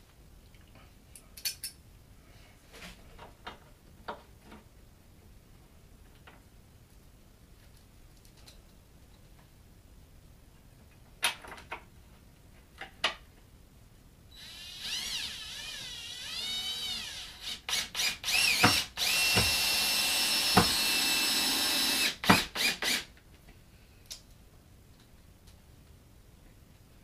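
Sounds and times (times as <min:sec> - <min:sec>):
cordless drill driving a screw: 0:14.4 - 0:23.1.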